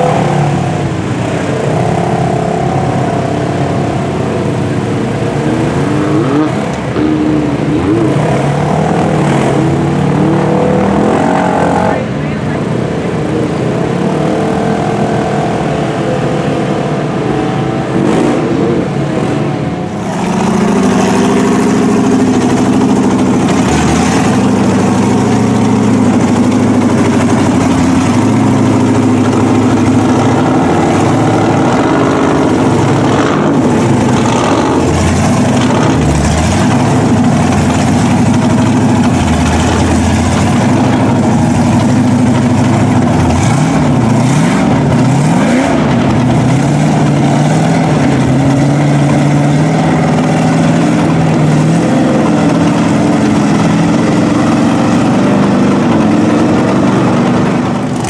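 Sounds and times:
engines revving through water: 0:00.0 - 0:58.0
truck engine idling: 0:19.6 - 0:58.0.

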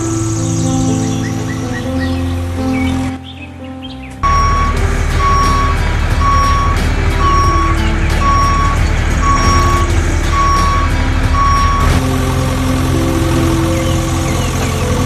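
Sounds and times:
truck engine running: 0:04.2 - 0:15.0
truck reversing alarm beeping: 0:04.2 - 0:15.0.

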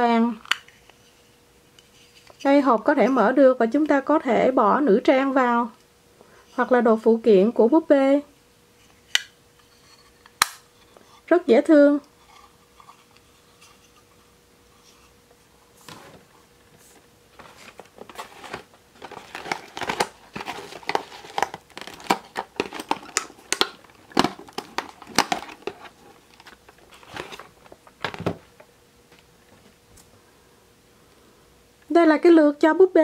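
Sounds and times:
plastic packaging crinkling: 0:17.3 - 0:28.6.

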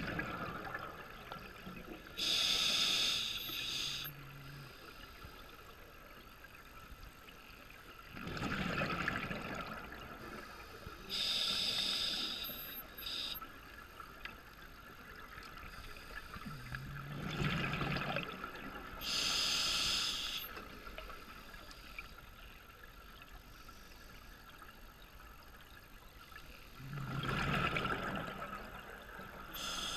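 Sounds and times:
regulator inhalation hiss: 0:02.2 - 0:04.1, 0:10.4 - 0:13.4, 0:19.0 - 0:20.6, 0:29.6 - 0:29.9
bubbling exhalations underwater: 0:26.8 - 0:28.6.

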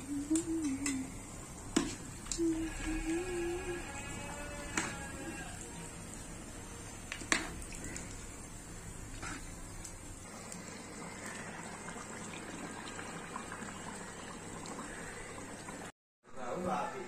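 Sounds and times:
curry bubbling in a pot: 0:00.4 - 0:15.9.

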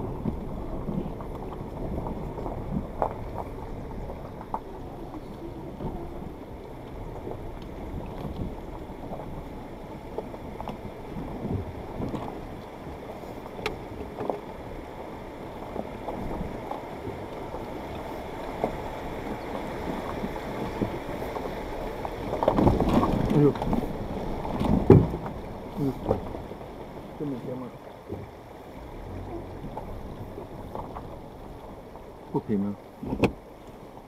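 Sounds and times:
engine and tyres rumbling: 0:00.0 - 0:34.0.

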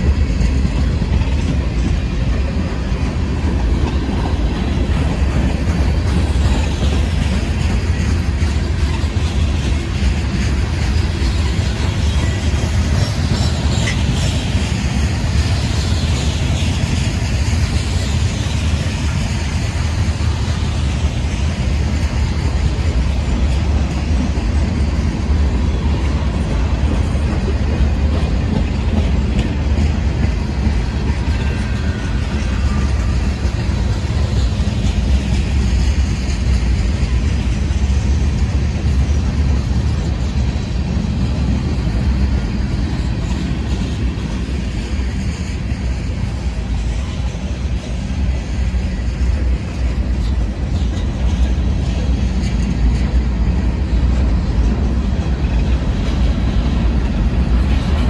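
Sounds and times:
freight train wheels rumbling: 0:00.0 - 0:58.0.

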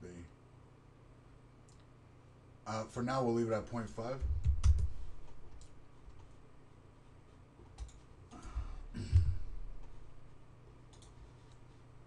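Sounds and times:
faint low hum: 0:00.0 - 0:12.0
computer mouse clicks: 0:04.3 - 0:06.3, 0:07.7 - 0:08.1, 0:10.9 - 0:11.6
knock with low thump: 0:09.0 - 0:09.5.

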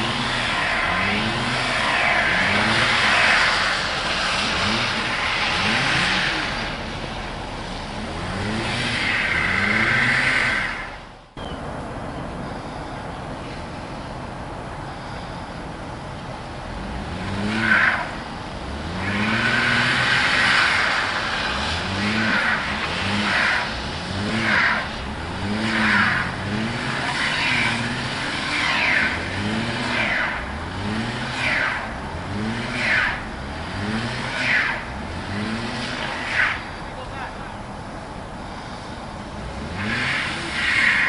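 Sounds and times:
wheels spinning on snow: 0:00.0 - 0:11.2, 0:16.6 - 0:37.6, 0:38.2 - 0:41.0
car engine revving: 0:00.0 - 0:41.0.

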